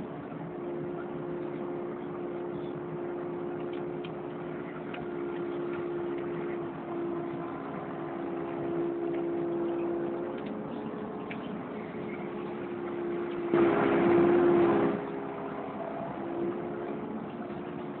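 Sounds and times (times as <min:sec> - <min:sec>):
excavator engine and hydraulics: 0:00.0 - 0:18.0.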